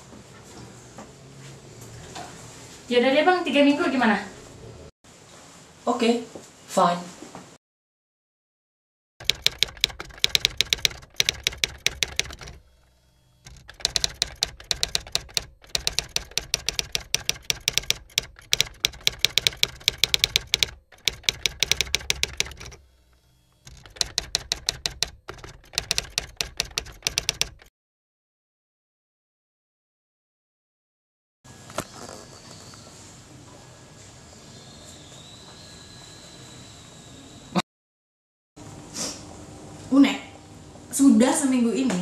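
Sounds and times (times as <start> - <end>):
typewriter key clicks: 9.2 - 12.6, 13.5 - 22.8, 23.7 - 27.7.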